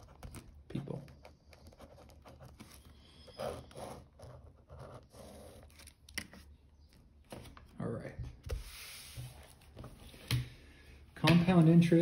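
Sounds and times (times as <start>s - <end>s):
pen scratching on paper: 1.4s - 5.9s.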